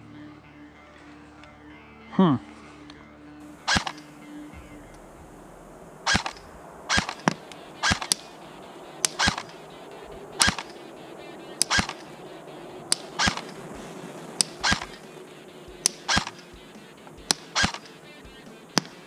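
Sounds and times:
sharp click: 3.6 - 5.0, 6.1 - 8.3, 9.0 - 9.6, 10.4 - 10.8, 11.6 - 12.1, 12.9 - 13.6, 14.4 - 15.1, 15.8 - 16.6, 17.2 - 18.0, 18.7 - 19.0
airsoft gun shots: 3.6 - 8.4, 9.0 - 10.9, 11.6 - 12.2, 12.9 - 19.0.

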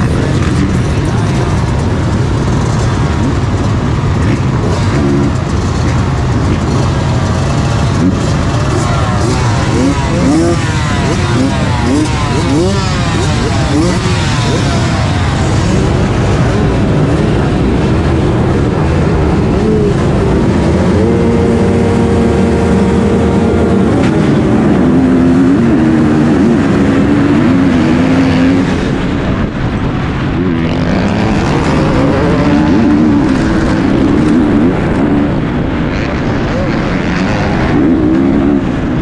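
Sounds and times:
motocross bike engines revving: 0.0 - 39.0.

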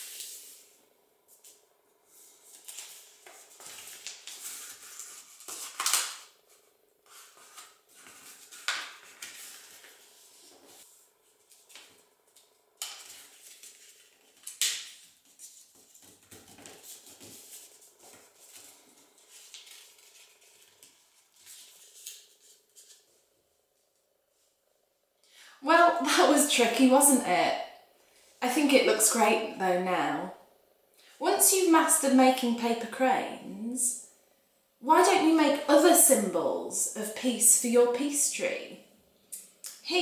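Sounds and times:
paper rustling and crinkling: 1.3 - 23.3
paper crackles: 1.4 - 23.2.

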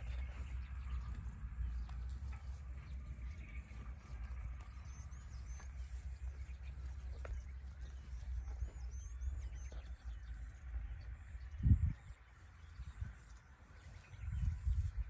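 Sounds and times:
calf chewing dry grass: 0.0 - 10.8
bird chirping: 0.0 - 15.0
low wind rumble: 0.0 - 15.0.

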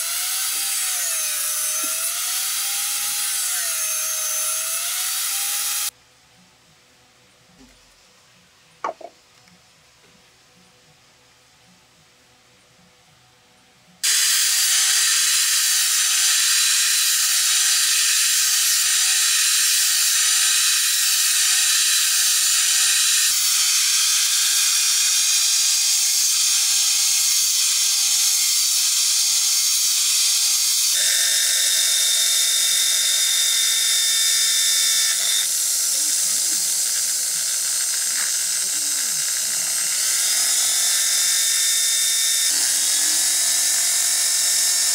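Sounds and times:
electric drill boring: 0.0 - 5.9, 14.0 - 44.9
angle grinder grinding shell: 14.0 - 44.9.

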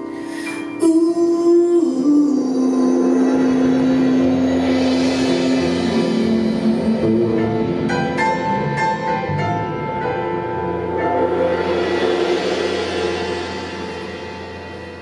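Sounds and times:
piano notes: 0.0 - 15.0
small band playing live: 0.0 - 15.0.

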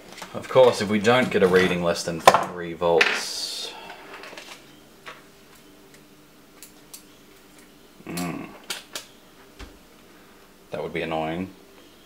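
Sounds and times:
person humming briefly: 8.0 - 8.7.

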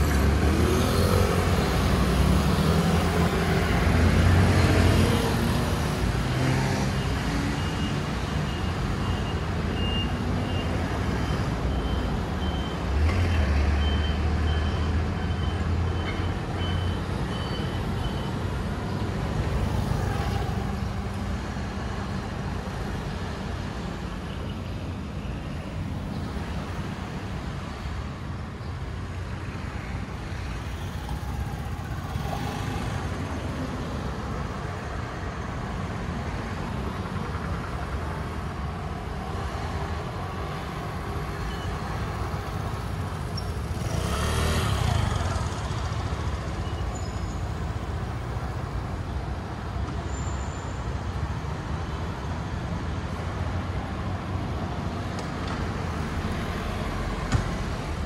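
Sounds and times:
rumble of traffic engines: 0.0 - 58.0.

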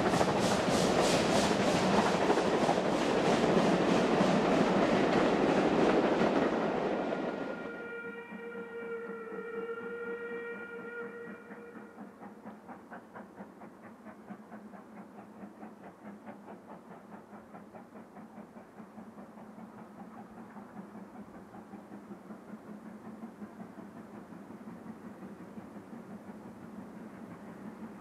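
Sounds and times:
steam locomotive exhaust beating: 0.0 - 28.0
steam whistle: 7.3 - 12.1.

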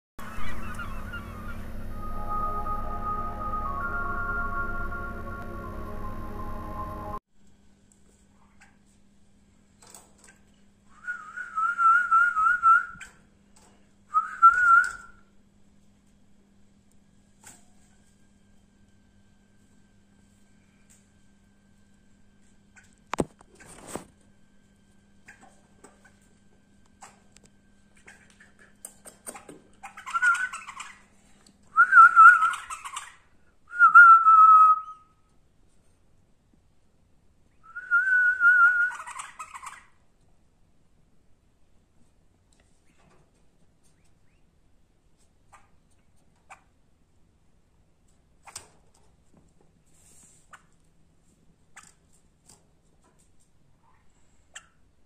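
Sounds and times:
warbling whistle: 0.2 - 7.2, 37.7 - 39.1.

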